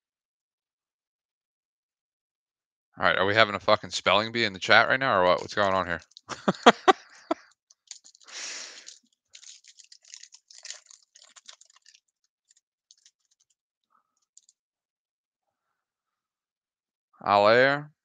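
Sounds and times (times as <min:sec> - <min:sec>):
foil crinkling and rustling: 0:07.7 - 0:13.5
foil wrapper tearing: 0:07.8 - 0:13.5.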